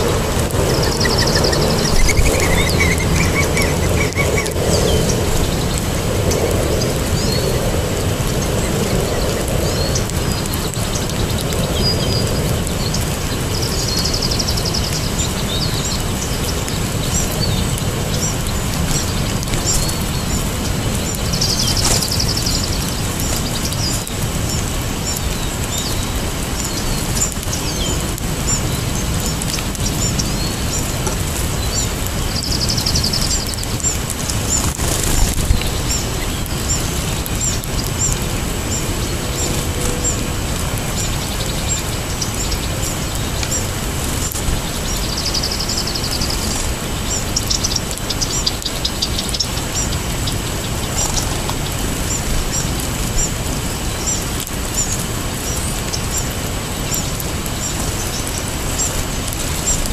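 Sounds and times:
steady low rumble: 0.0 - 15.0
songbirds chip calls: 0.0 - 59.9
buzzy bird trills: 0.3 - 7.5.

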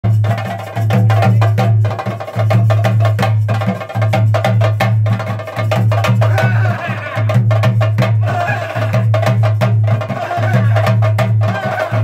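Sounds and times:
rapid stick drumming: 6.0 - 12.0.

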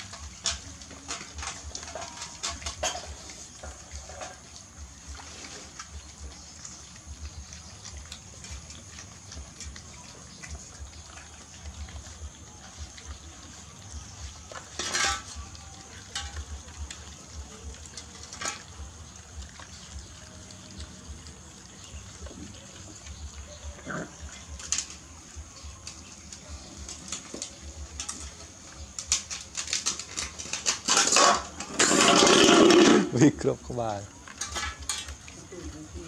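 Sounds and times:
puppies lapping and chewing: 0.0 - 36.0
plastic plates scraping concrete: 13.4 - 20.0, 25.8 - 33.2.

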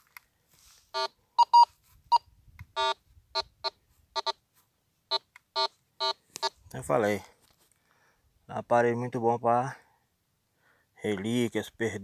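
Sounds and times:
metal detector beeps: 1.0 - 4.4, 5.1 - 6.6.

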